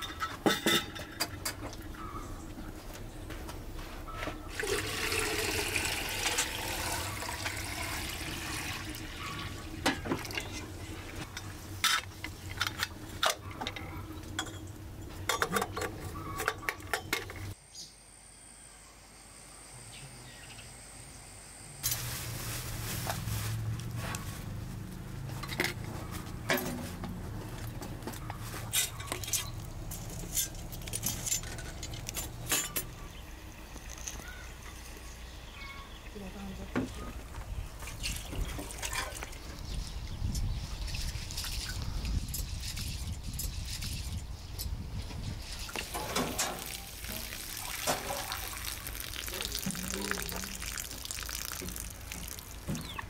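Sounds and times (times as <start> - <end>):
metal pots and utensils clinking: 0.0 - 2.1, 9.2 - 17.6, 28.6 - 33.0, 38.0 - 39.4, 45.7 - 50.9
water poured into metal urn: 4.5 - 10.6, 45.7 - 53.0.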